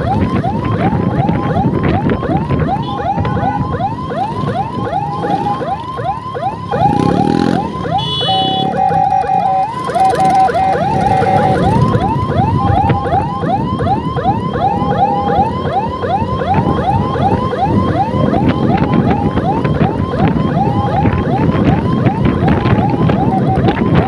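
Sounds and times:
electronic siren yelping: 0.0 - 24.0
road noise: 0.0 - 24.0
scooter engine: 4.1 - 12.6
steady horn tone: 7.9 - 8.9.

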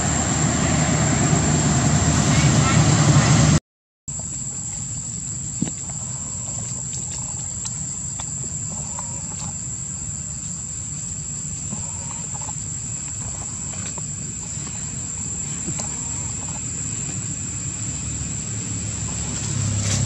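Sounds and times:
insect chorus droning: 0.0 - 3.2, 4.1 - 20.0
low background rumble: 0.0 - 20.0
faint ticks and rustles: 4.2 - 9.6, 10.3 - 17.3.

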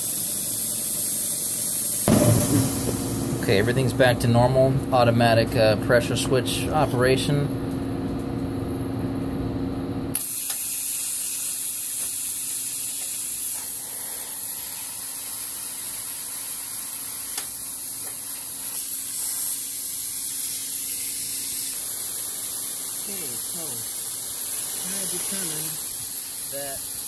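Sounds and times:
compressed air hissing: 0.0 - 3.6, 10.2 - 27.0.

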